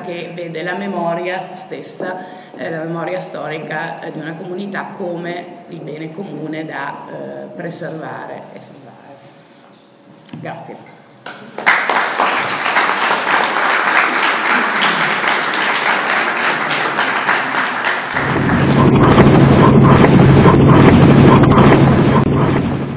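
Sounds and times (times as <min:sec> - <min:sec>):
audience applauding: 0:11.2 - 0:18.9
outro music with bass pulse: 0:18.2 - 0:22.9.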